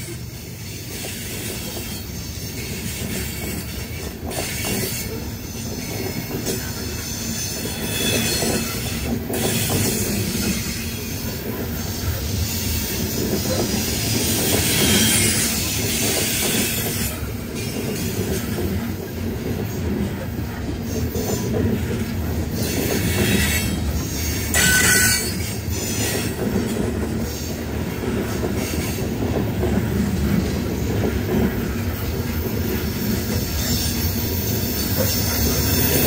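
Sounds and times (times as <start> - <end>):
train wheels rumbling on rail: 0.0 - 36.0
high-pitched wheel squeal: 0.7 - 17.1, 22.5 - 26.4.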